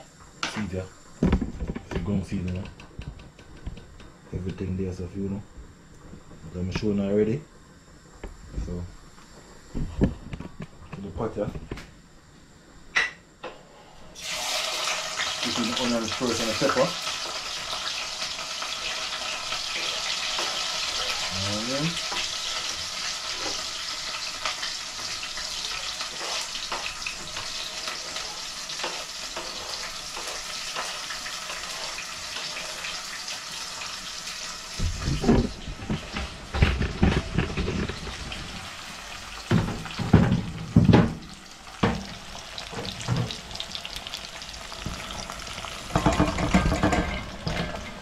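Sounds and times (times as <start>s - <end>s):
vegetables sizzling in a frying pan: 14.2s - 48.0s
irregular knocks and bumps: 34.8s - 38.3s, 39.5s - 41.2s, 45.9s - 47.7s.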